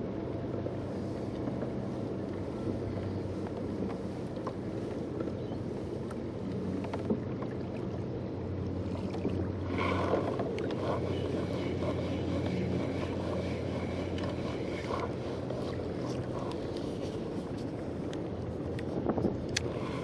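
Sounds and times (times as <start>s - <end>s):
water washing against a hull: 0.0s - 20.0s
wind on microphone: 8.9s - 20.0s
fishing rod and reel rattling: 9.7s - 20.0s.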